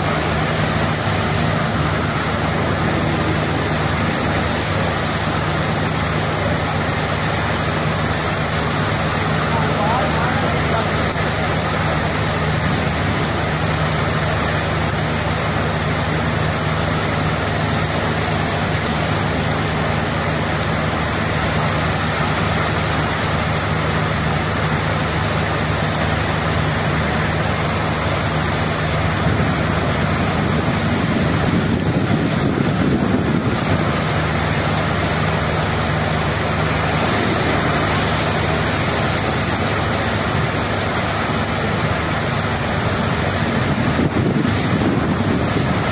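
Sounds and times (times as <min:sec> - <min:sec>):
heavy rain on pavement: 0:00.0 - 0:45.9
low steady hum: 0:00.0 - 0:45.9
low rumble: 0:35.6 - 0:40.6.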